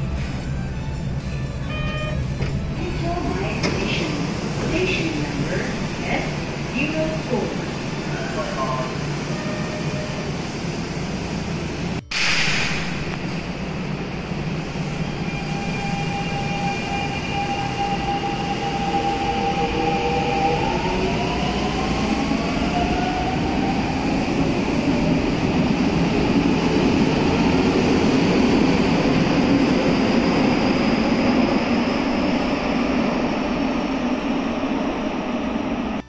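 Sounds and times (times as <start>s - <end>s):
wheel and rail rumble: 0.0s - 12.0s.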